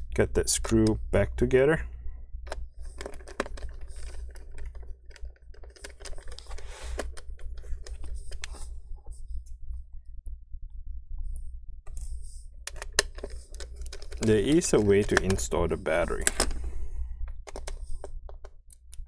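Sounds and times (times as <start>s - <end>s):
screwdriver clicking and scraping: 3.0s - 8.6s, 12.7s - 15.4s.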